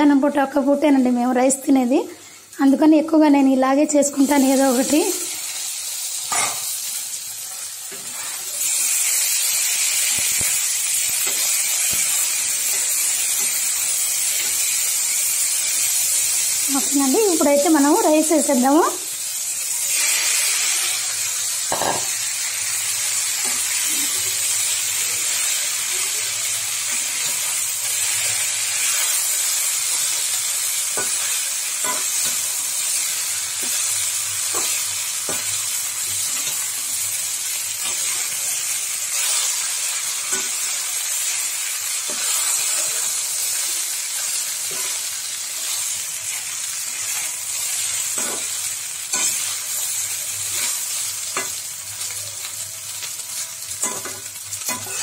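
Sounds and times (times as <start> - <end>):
food sizzling in a pan: 0.0 - 55.0
metal spoon scraping a pan: 5.5 - 6.9, 7.5 - 15.8, 26.8 - 37.1, 37.8 - 51.6, 53.0 - 55.0.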